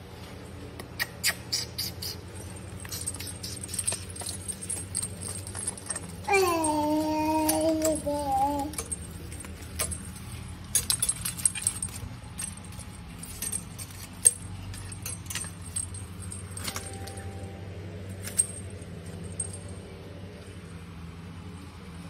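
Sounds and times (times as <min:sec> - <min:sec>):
low steady hum: 0:00.0 - 0:22.0
metallic clinks and jingles: 0:01.5 - 0:21.7.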